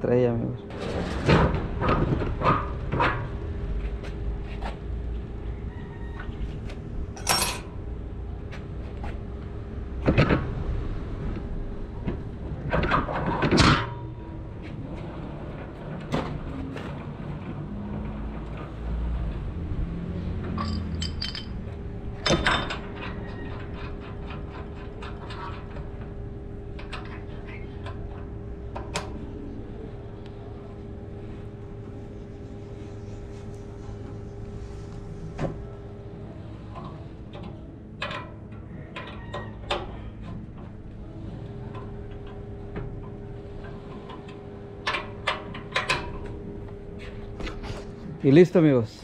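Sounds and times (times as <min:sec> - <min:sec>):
heavy metal parts clanking: 0:07.2 - 0:07.7, 0:20.4 - 0:26.1.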